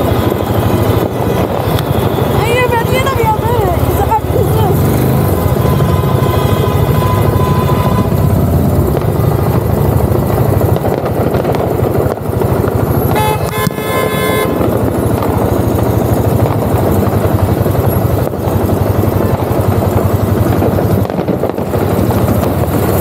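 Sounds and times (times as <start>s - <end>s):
motorcycle engine rumbling: 0.0s - 23.0s
vehicle horn honking: 5.0s - 8.4s, 13.1s - 14.8s.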